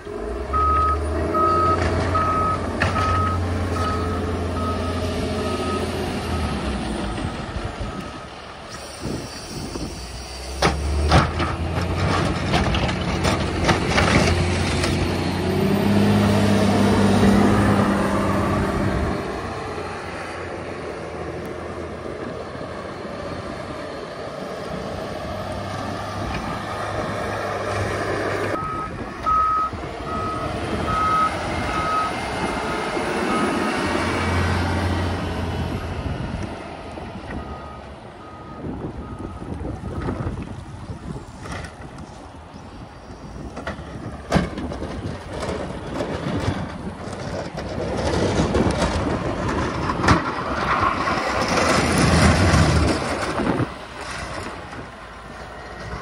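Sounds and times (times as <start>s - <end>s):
backup alarm beeping: 0.5s - 6.7s, 28.6s - 32.2s.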